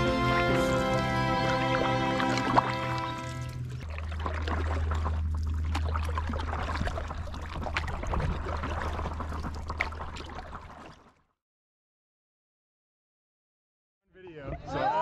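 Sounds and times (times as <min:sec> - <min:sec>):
steady low hum: 0:00.0 - 0:09.4
water splashing from paddling: 0:00.0 - 0:11.2.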